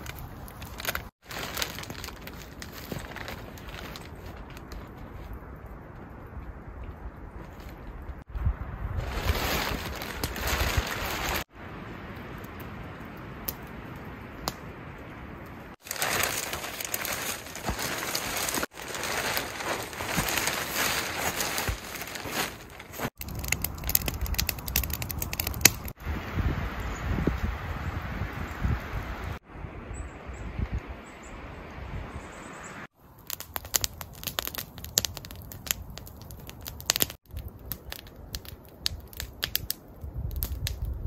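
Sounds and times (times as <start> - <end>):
tarp rustling and crinkling: 0.0 - 5.5, 8.9 - 11.5, 15.7 - 25.9.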